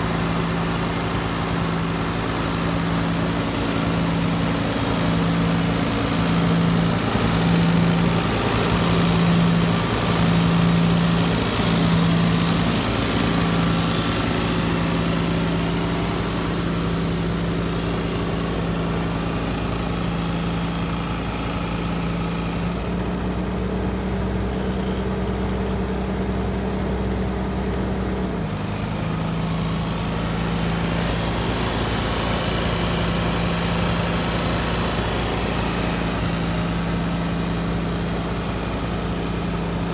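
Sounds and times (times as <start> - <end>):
tractor engine running: 0.0 - 39.9.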